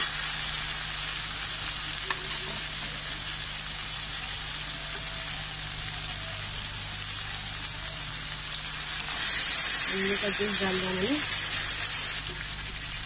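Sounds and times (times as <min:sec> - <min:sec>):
masala sizzling in oil: 0:00.0 - 0:13.0.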